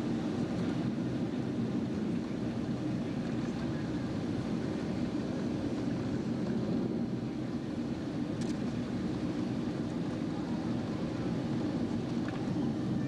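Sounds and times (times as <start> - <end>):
jet engine and airflow noise: 0.0 - 13.0
faint click: 8.4 - 8.6.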